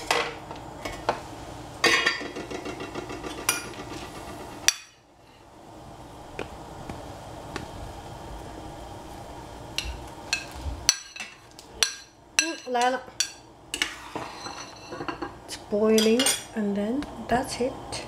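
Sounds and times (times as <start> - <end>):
soup boiling with bubbling hiss: 0.0 - 12.4.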